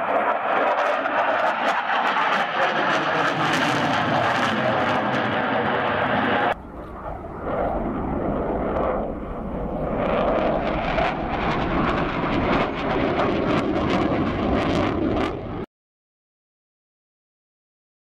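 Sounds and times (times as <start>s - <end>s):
fighter jet passing on afterburner: 0.0s - 15.7s.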